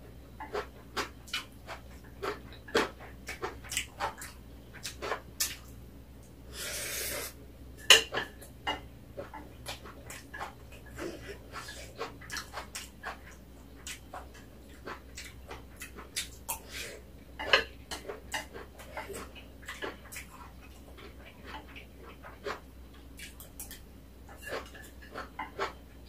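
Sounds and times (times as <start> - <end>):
chewing: 0.4 - 5.8, 8.7 - 16.8, 17.4 - 25.8
slurp: 6.5 - 7.4.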